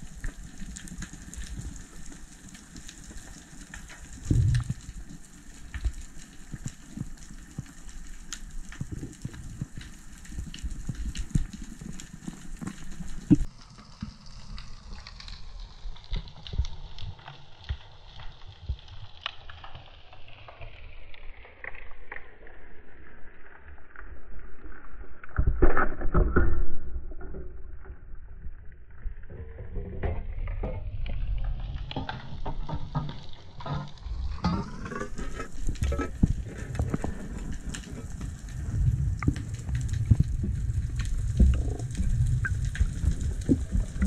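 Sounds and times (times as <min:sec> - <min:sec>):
underwater crackle of clicks: 0:00.0 - 0:18.4, 0:29.3 - 0:44.0
low water rumble: 0:00.0 - 0:19.2, 0:19.8 - 0:44.0
water rushing and knocking: 0:04.2 - 0:05.0, 0:08.5 - 0:13.5, 0:32.3 - 0:44.0.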